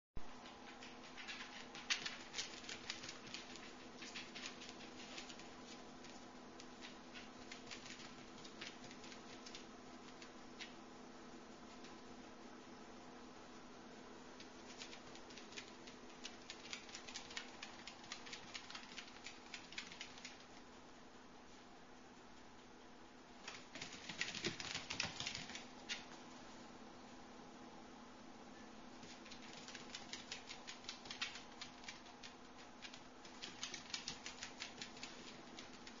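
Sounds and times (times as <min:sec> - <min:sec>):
dog claws clicking on hard floor: 0:00.4 - 0:10.8, 0:14.4 - 0:20.7, 0:23.4 - 0:26.2, 0:29.0 - 0:36.0.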